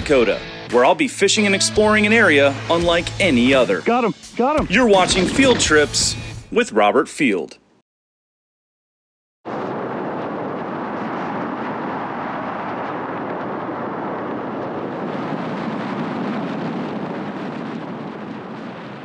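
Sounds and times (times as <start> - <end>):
wind rushing: 9.5 - 19.0.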